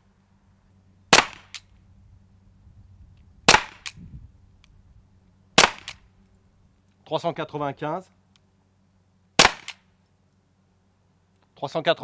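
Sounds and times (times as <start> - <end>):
air pistol shots popping: 1.1 - 1.7, 3.5 - 4.0, 5.6 - 6.1, 9.4 - 9.9.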